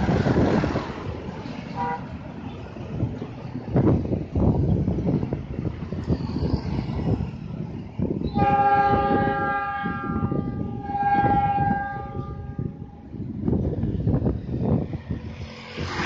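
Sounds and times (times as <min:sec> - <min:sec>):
wind buffeting microphone: 0:00.0 - 0:16.0
locomotive horn blast: 0:01.8 - 0:02.2, 0:08.3 - 0:13.1.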